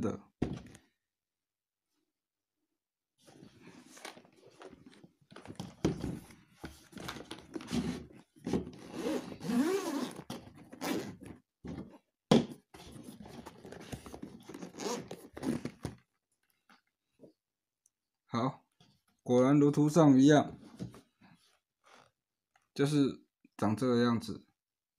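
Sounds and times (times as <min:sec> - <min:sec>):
zipper being pulled open: 0:08.8 - 0:11.4, 0:14.4 - 0:16.0.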